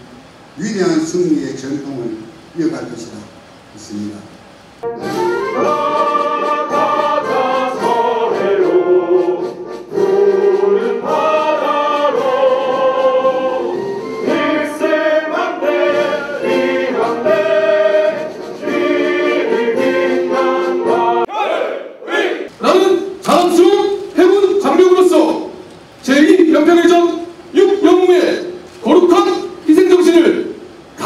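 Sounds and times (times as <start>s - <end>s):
men singing together: 5.4s - 21.3s.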